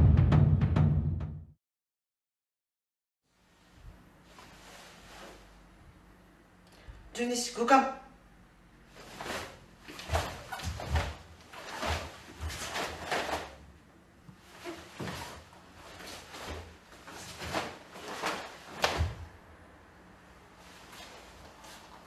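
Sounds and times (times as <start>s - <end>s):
bare feet on wooden floor: 9.0s - 13.6s, 14.3s - 19.3s
karate uniform snapping: 16.4s - 19.2s.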